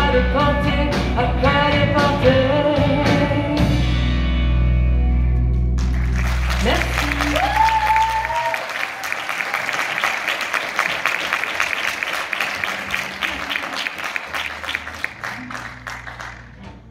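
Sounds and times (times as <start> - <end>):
audience applauding: 5.8 - 16.9.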